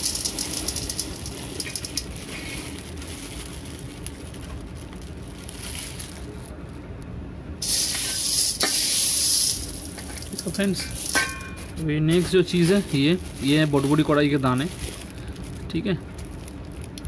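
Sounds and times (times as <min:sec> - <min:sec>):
dried peas rattling into metal pot: 0:00.0 - 0:06.6, 0:07.6 - 0:17.0
plastic bag rustling: 0:00.0 - 0:06.9, 0:07.6 - 0:17.0.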